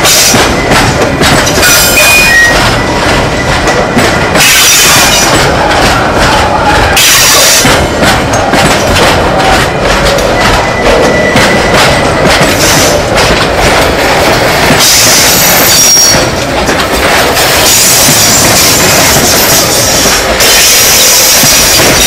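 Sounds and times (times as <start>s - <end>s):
train wheels clattering over rails: 0.0s - 22.0s
high wheel squeal: 1.6s - 5.4s, 14.8s - 16.3s, 17.6s - 22.0s.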